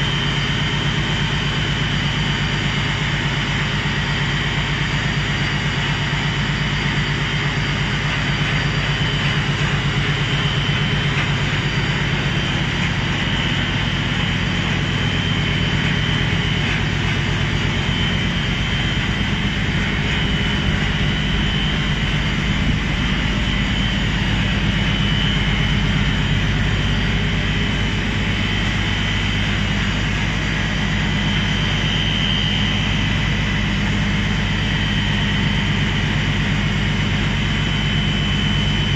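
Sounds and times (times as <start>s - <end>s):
motors whining and humming: 5.9s - 38.9s.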